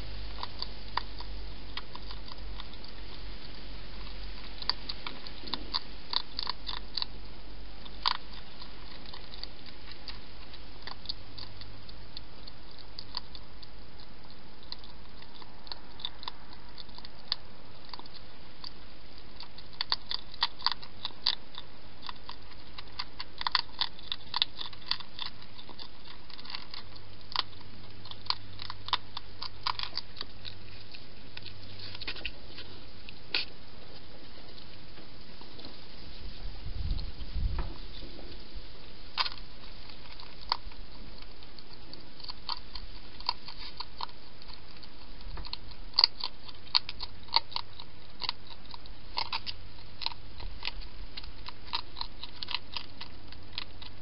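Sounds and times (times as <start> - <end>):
hedgehog chewing crunchy food: 0.0 - 54.0.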